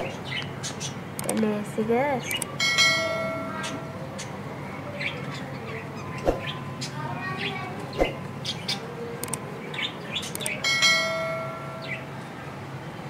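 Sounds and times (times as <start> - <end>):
small birds chirping: 0.0 - 2.6, 3.5 - 10.6
bright bell chime: 2.6 - 4.1, 10.6 - 12.2.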